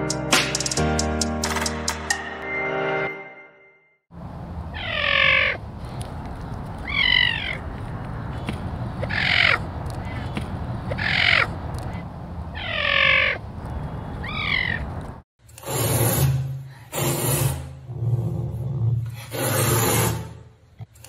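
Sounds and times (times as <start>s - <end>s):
caracal calling: 4.7s - 5.6s, 6.8s - 7.7s, 9.0s - 10.3s, 10.9s - 13.4s, 14.2s - 14.9s.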